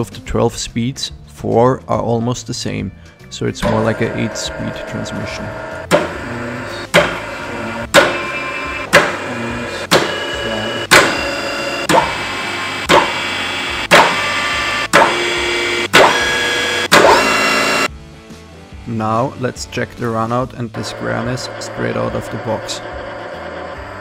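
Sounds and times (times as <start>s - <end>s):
music with steady beat: 3.6s - 18.8s.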